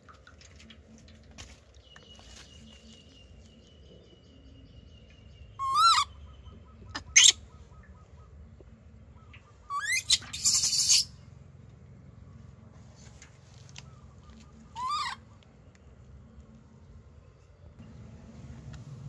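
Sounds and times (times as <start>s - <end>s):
baby monkey squealing: 5.6s - 6.1s, 7.0s - 7.4s, 9.7s - 11.1s, 14.8s - 15.2s.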